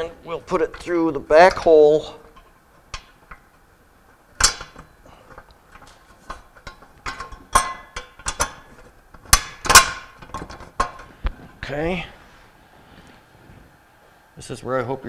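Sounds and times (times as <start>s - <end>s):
metal bolt and washers clinking: 4.4s - 11.1s
sharp metal clanks ringing: 6.6s - 8.6s.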